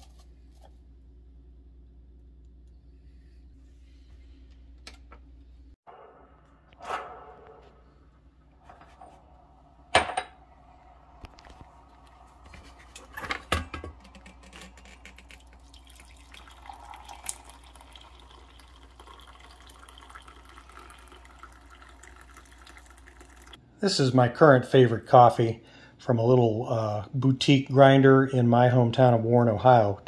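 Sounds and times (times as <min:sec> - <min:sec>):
coffee trickling into a mug: 0:11.2 - 0:23.6.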